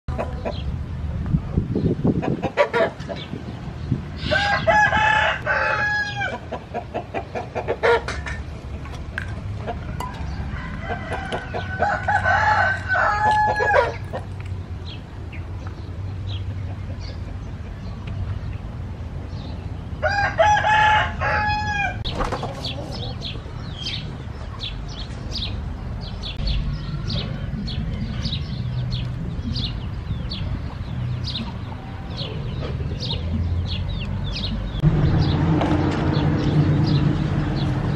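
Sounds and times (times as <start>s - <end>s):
rooster crowing: 4.2s - 6.4s, 10.0s - 14.0s, 20.0s - 22.0s.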